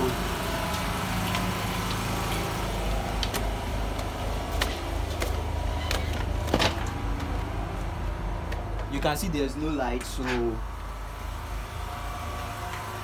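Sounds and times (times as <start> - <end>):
low engine hum: 0.0 - 13.0
slipper footsteps on tiled stairs: 0.6 - 2.6.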